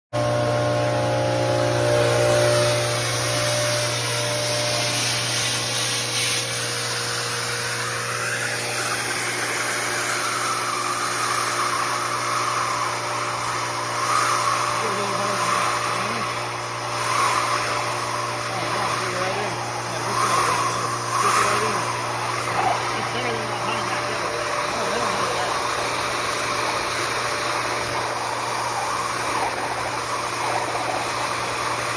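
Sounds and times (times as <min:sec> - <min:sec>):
industrial vacuum humming: 0:00.1 - 0:31.9
air rushing through hose: 0:02.1 - 0:31.9.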